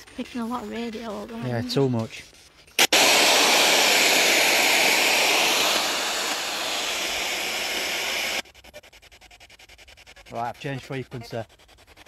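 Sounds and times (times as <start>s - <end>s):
radio static hiss: 2.8s - 8.4s.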